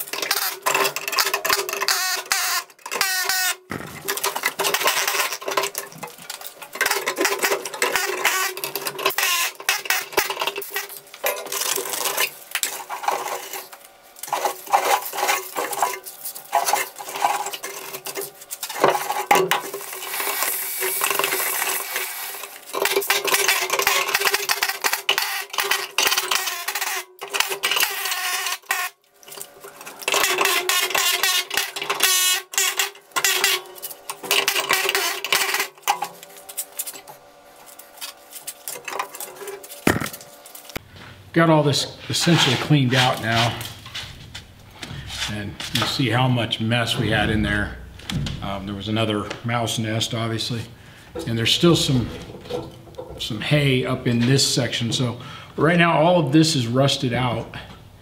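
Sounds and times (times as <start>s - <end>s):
scraping and metallic clinking: 3.9s - 40.8s, 50.8s - 54.4s
steady low hum: 33.0s - 55.7s.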